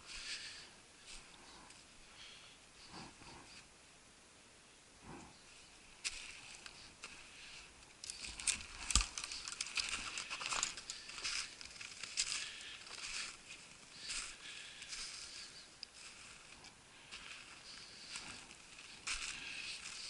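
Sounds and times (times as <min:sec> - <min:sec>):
twigs and clothing rustling: 0:00.0 - 0:03.7, 0:05.2 - 0:20.0
footsteps crunching in snow: 0:06.0 - 0:20.0.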